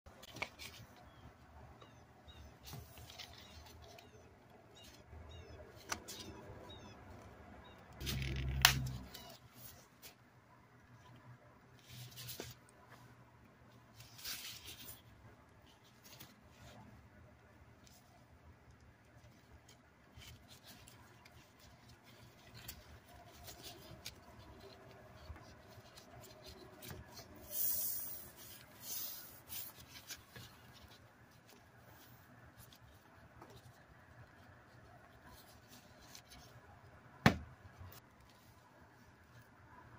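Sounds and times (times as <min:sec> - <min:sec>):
plastic gloves rustling: 0:19.2 - 0:36.7.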